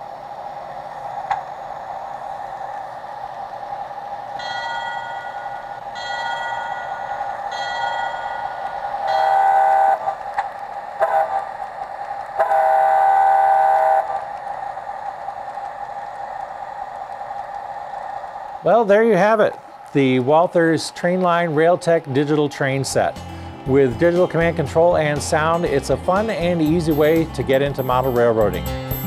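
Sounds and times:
diesel locomotive engine drone: 0:00.0 - 0:29.0
faint ringing tones: 0:04.4 - 0:10.1
locomotive horn blasts: 0:09.1 - 0:10.2, 0:11.0 - 0:11.4, 0:12.4 - 0:14.2.

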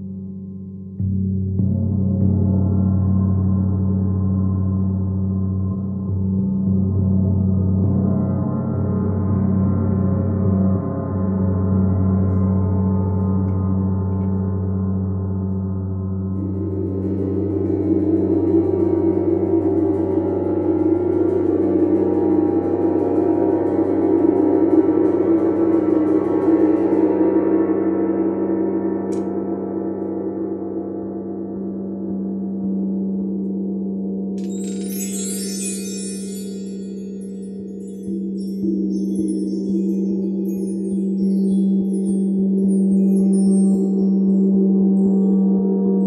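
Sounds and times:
gong drone: 0:10.2 - 0:33.6.

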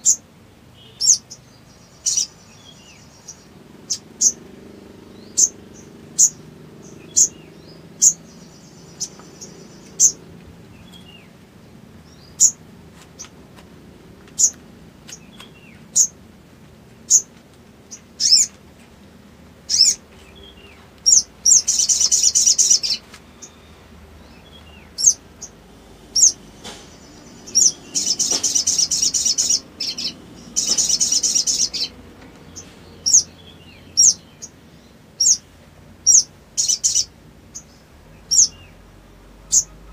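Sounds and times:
bird chattering trills: 0:00.8 - 0:11.2, 0:12.1 - 0:12.6, 0:14.4 - 0:16.2, 0:17.1 - 0:17.3, 0:18.2 - 0:18.5, 0:19.7 - 0:34.6, 0:35.2 - 0:35.4, 0:36.0 - 0:38.8, 0:39.4 - 0:39.9
bird high chirps: 0:00.8 - 0:11.3, 0:12.0 - 0:12.6, 0:14.4 - 0:16.2, 0:17.1 - 0:17.3, 0:17.9 - 0:18.5, 0:19.7 - 0:35.4, 0:36.0 - 0:38.8, 0:39.4 - 0:39.9.

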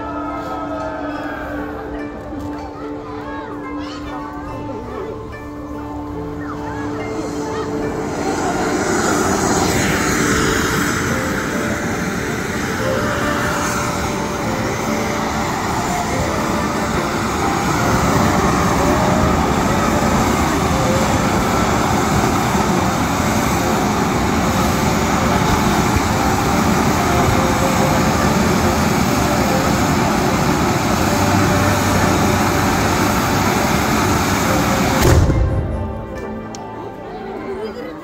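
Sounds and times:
fountain firework hissing: 0:06.3 - 0:35.8.

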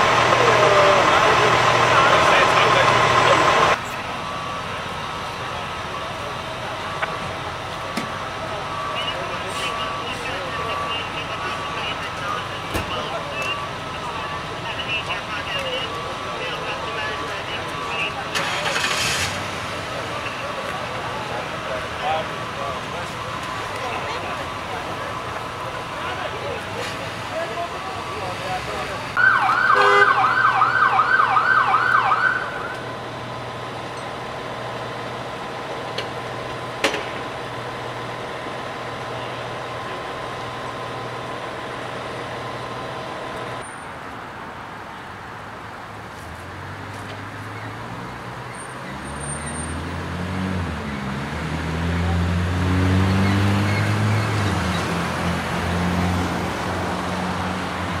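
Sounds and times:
vehicle engine revving: 0:00.0 - 0:03.8, 0:18.3 - 0:21.8, 0:47.8 - 0:58.0
street noise: 0:00.0 - 0:58.0
emergency siren yelping: 0:29.2 - 0:32.9.

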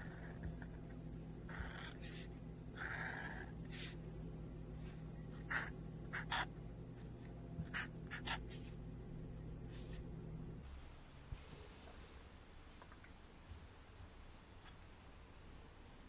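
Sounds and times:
marker scratching on paper: 0:01.5 - 0:02.4, 0:03.2 - 0:04.0, 0:05.3 - 0:06.5, 0:07.6 - 0:08.8.

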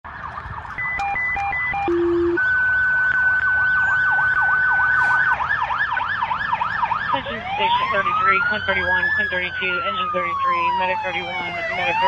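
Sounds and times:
siren yelping: 0:00.1 - 0:12.0
radio alert beeps and tones: 0:00.8 - 0:05.4.

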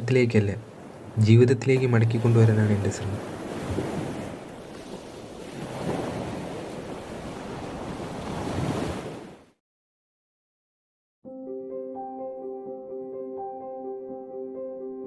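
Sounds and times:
sea surf washing onto beach: 0:00.0 - 0:09.3.

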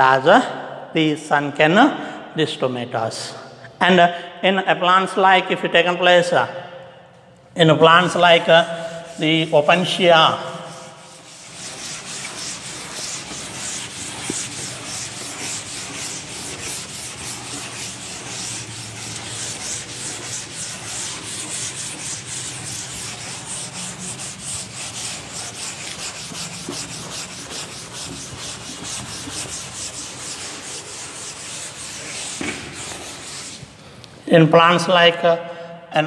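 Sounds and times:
duster scrubbing chalkboard: 0:08.0 - 0:33.8.

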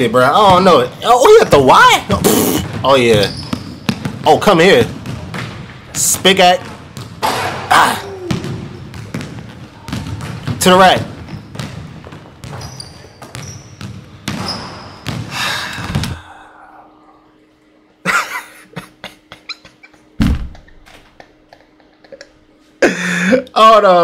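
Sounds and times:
basketball bouncing on gym floor: 0:02.1 - 0:16.2, 0:20.2 - 0:20.8
shoe squeaks: 0:02.3 - 0:04.1, 0:11.2 - 0:11.7, 0:12.4 - 0:15.1
faint steady hum: 0:13.2 - 0:24.0.

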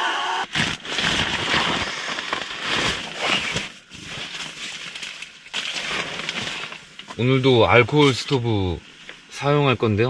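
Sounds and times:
nylon sack crinkling: 0:00.5 - 0:08.4
clothing and bedding rustling: 0:00.6 - 0:08.4.

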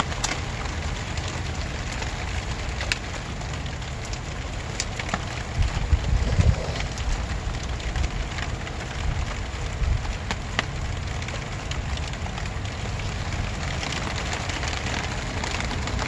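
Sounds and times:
rain drops on plastic sheeting: 0:00.0 - 0:16.0
low rumble: 0:05.5 - 0:08.4.

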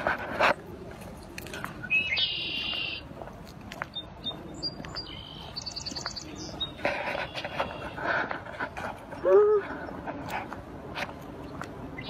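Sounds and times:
rustling noise: 0:00.0 - 0:01.9, 0:05.4 - 0:12.0
songbirds singing: 0:01.7 - 0:03.1, 0:03.8 - 0:08.1.

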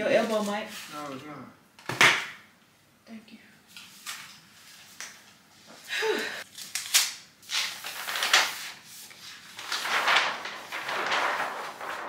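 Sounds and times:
paper rustling: 0:03.7 - 0:05.4, 0:06.5 - 0:12.0.

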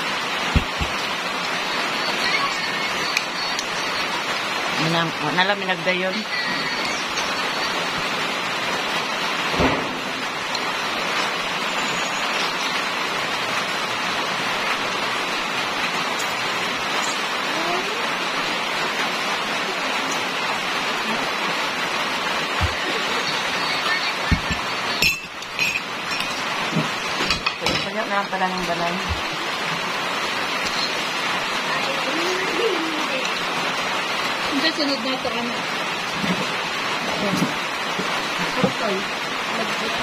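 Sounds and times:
rain on a metal roof: 0:00.0 - 0:40.0
spoon clinking in a ceramic mug: 0:25.0 - 0:26.4.

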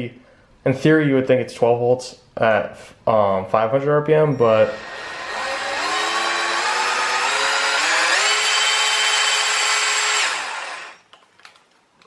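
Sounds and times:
power drill motor whine: 0:04.5 - 0:11.1.

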